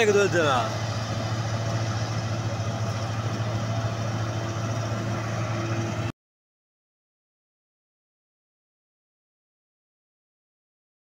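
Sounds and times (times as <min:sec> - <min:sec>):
combine harvester humming: 0:00.0 - 0:06.1.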